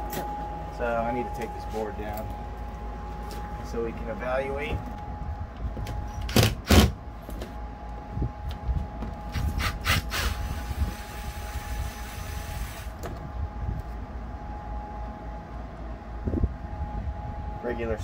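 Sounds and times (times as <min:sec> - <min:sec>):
drill driving out screws: 0:09.3 - 0:12.9.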